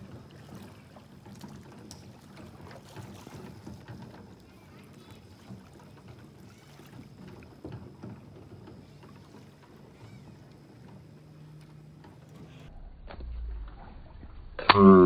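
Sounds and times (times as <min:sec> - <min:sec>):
paddle splashing in water: 0:00.0 - 0:12.7.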